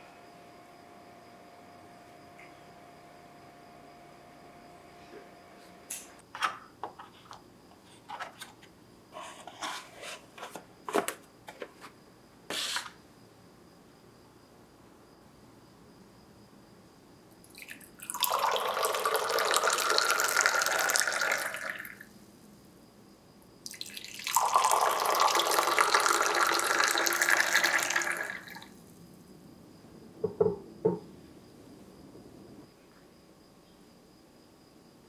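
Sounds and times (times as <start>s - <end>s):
tea pouring into a glass: 17.4s - 22.1s, 23.6s - 28.7s.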